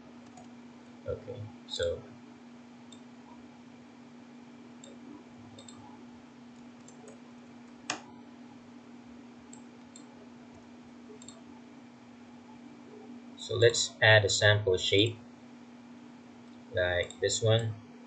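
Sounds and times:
steady low hum: 0:00.0 - 0:18.0
computer keyboard and mouse clicks: 0:00.2 - 0:00.5, 0:05.6 - 0:05.9, 0:06.8 - 0:08.1, 0:11.1 - 0:11.4.

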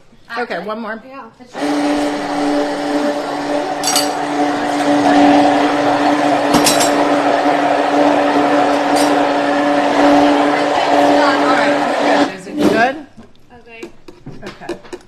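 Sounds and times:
immersion blender motor hum: 0:01.5 - 0:12.6.

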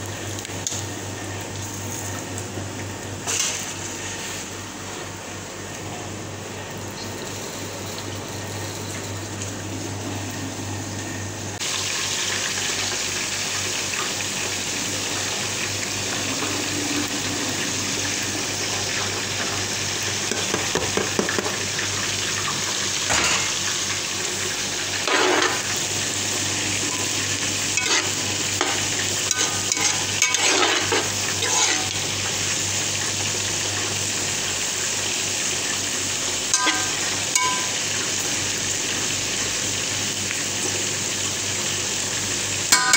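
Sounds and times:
oil sizzling in frying pan: 0:00.0 - 0:42.9
metal spoon scraping pan: 0:25.0 - 0:25.6, 0:27.8 - 0:32.0, 0:36.6 - 0:37.7.

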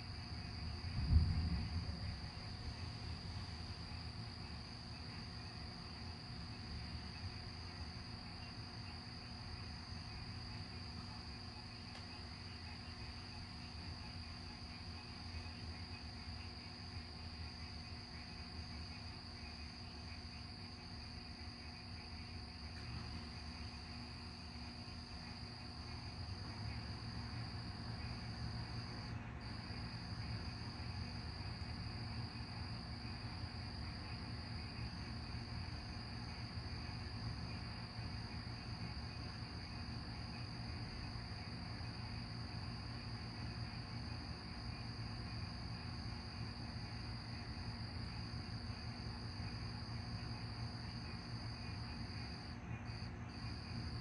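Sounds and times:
night insects chirring: 0:00.0 - 0:54.0
distant thunder rumble: 0:00.7 - 0:03.4.

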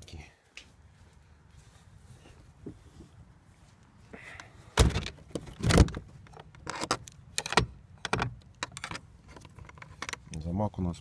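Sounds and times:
shed door thudding: 0:04.8 - 0:06.1
padlock metallic clinks: 0:06.3 - 0:10.2.

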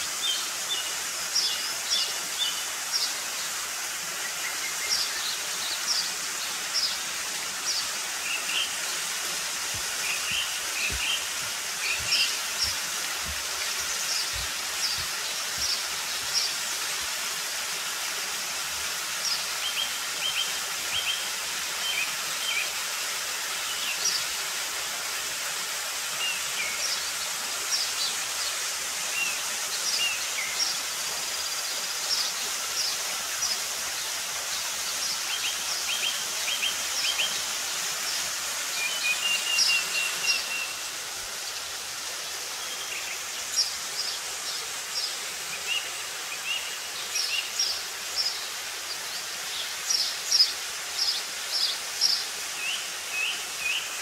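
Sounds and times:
waterfall rushing over rock: 0:00.0 - 0:54.0
birds chirping: 0:04.3 - 0:16.6.

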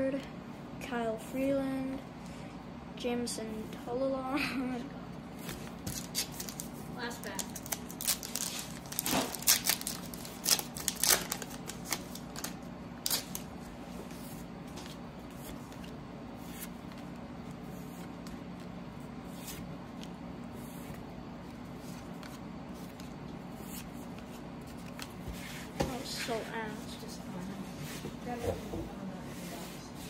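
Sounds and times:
plastic wrapper crackling: 0:06.0 - 0:13.5.

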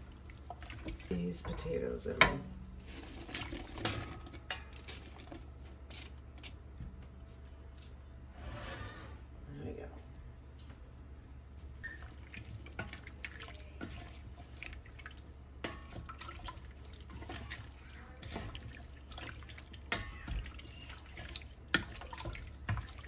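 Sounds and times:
liquid sloshing in pot: 0:00.0 - 0:06.2, 0:11.8 - 0:23.0
steady low hum: 0:00.0 - 0:17.1.

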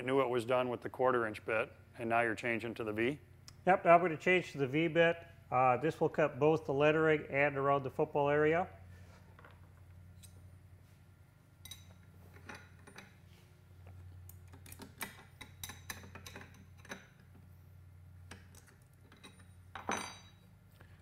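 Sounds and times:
wrenches clinking on metal nut: 0:14.5 - 0:17.3, 0:18.3 - 0:20.5.

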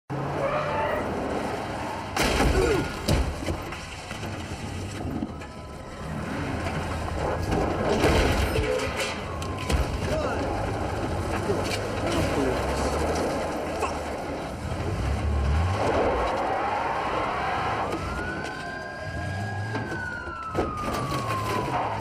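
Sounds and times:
car crash smashing impacts: 0:02.1 - 0:04.7, 0:07.4 - 0:10.3.

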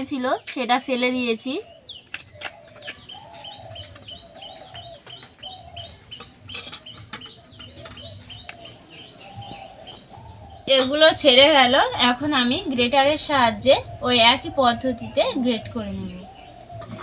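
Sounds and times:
small bird chirping: 0:01.0 - 0:11.3.

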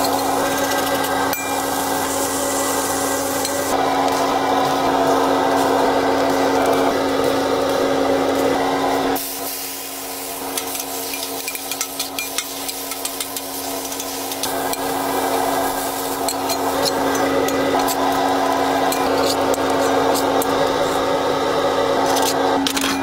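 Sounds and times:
burgers and onions sizzling: 0:00.0 - 0:20.7.

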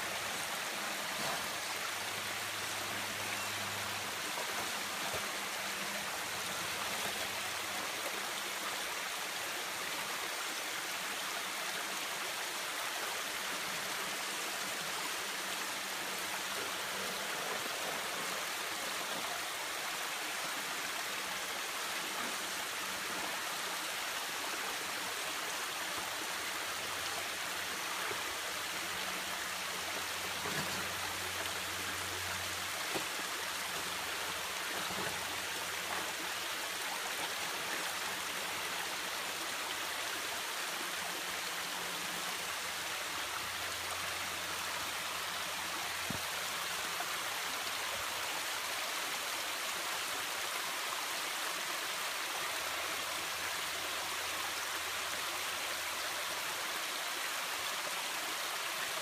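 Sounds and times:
water rushing down creek: 0:00.0 - 0:59.0.

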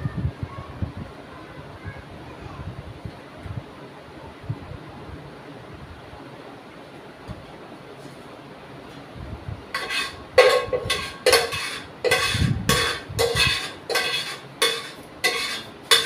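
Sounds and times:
metal cooking pot clanking: 0:09.8 - 0:16.0.

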